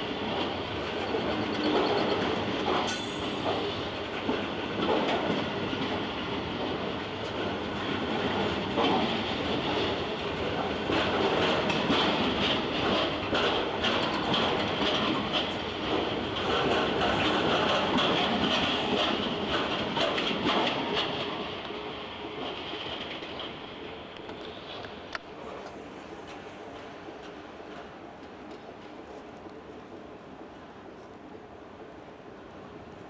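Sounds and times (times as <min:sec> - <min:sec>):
train wheels rumbling: 0:00.0 - 0:30.7.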